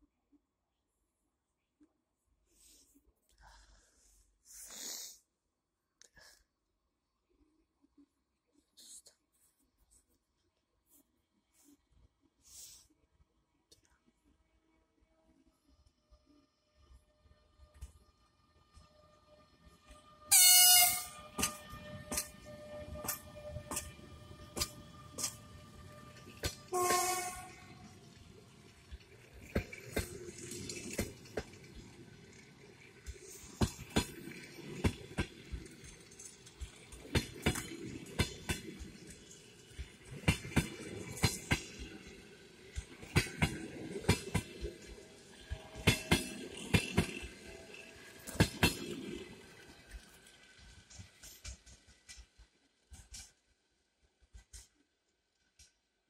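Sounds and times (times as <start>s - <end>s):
train wheels clicking over rail joints: 19.7s - 54.9s
train horn blast: 20.3s - 23.8s, 25.2s - 27.9s.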